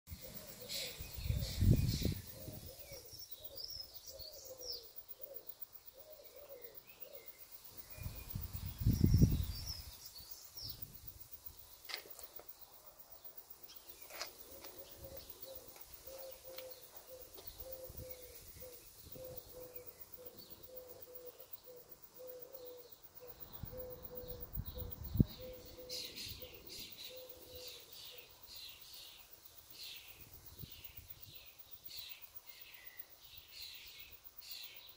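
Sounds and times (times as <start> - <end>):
low repeated bird call: 0.1 - 8.3, 14.0 - 29.2.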